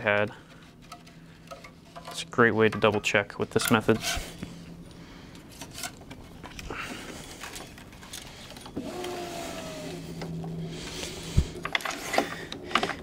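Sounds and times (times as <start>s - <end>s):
small motor whining and humming: 6.5s - 13.0s.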